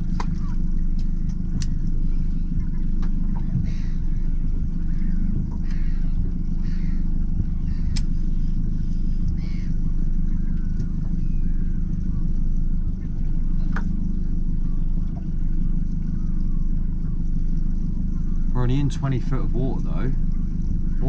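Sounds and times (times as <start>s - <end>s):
boat engine idling: 0.0s - 21.0s
faint seabird cries: 3.3s - 12.5s.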